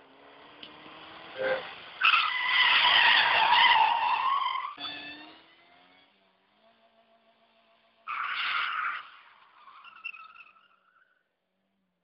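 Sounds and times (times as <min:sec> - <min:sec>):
car tyres squealing on asphalt: 0:00.2 - 0:05.6, 0:08.0 - 0:11.3.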